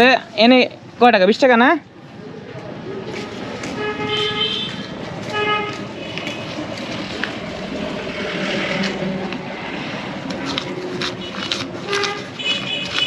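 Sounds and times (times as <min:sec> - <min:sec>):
road traffic hum: 0:00.0 - 0:13.0
vehicle horn tooting: 0:03.8 - 0:06.4, 0:11.2 - 0:13.0.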